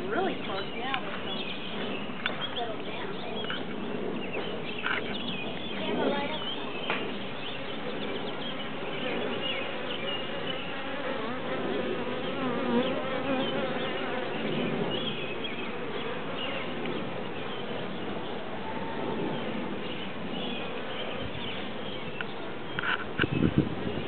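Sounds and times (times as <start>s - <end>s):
single bees flying by: 5.1s - 17.4s
bee swarm buzzing: 6.1s - 17.4s.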